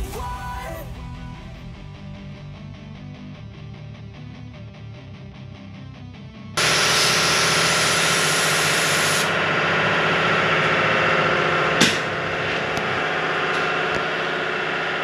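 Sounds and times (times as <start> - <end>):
air tool hissing: 6.6 - 14.6.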